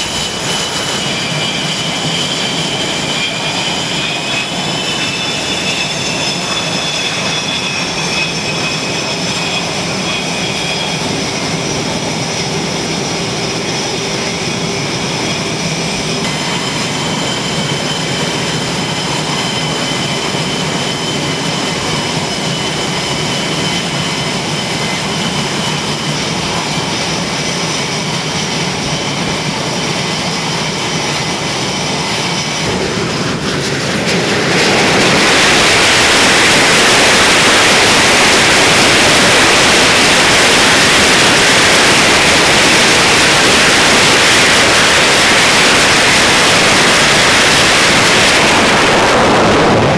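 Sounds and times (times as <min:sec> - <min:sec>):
jet engines whining: 0:00.0 - 0:49.9.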